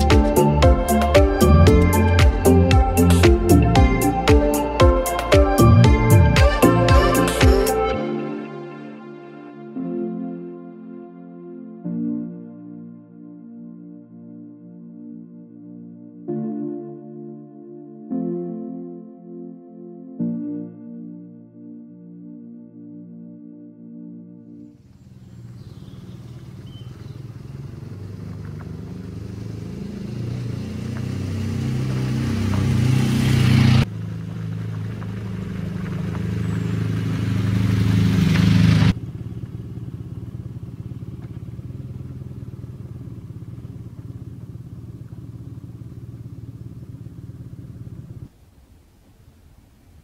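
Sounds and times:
motorcycle engine running: 0.0s - 7.9s, 24.8s - 48.3s.

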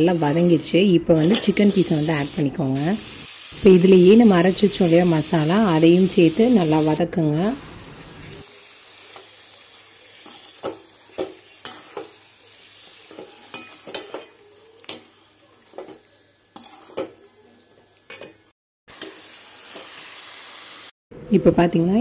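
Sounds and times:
meat sizzling in oil: 1.2s - 18.0s, 18.9s - 20.9s
ladle scraping and clinking on pan: 16.6s - 17.2s.

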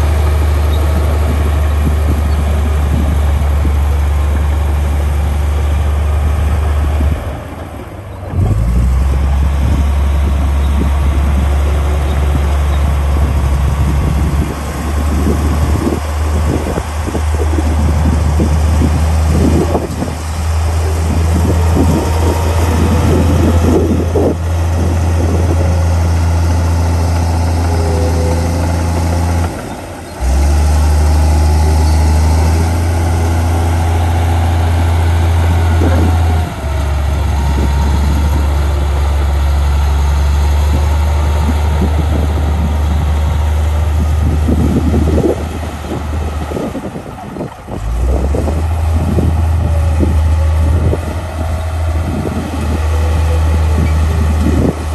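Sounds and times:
diesel engine droning under load: 0.0s - 54.9s.

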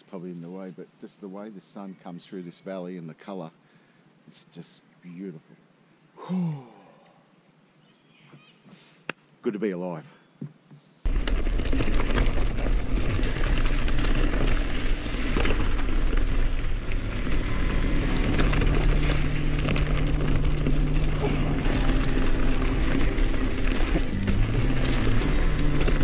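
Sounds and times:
bike rattling on dirt trail: 11.1s - 26.0s
background music with bass: 13.1s - 26.0s.

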